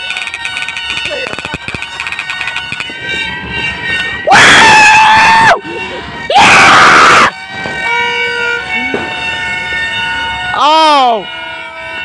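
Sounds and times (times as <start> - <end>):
loud horn blasts: 2.6 - 12.0.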